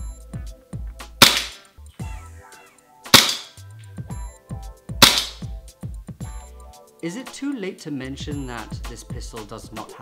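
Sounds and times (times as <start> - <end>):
background music with steady beat: 0.0 - 10.0
airsoft pistol shots: 1.2 - 1.6, 3.1 - 3.6, 5.0 - 5.4.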